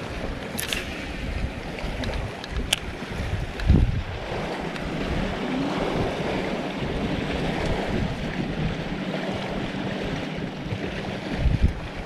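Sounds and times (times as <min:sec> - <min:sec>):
choppy water lapping: 0:00.0 - 0:12.0
wind buffeting microphone: 0:00.0 - 0:12.0.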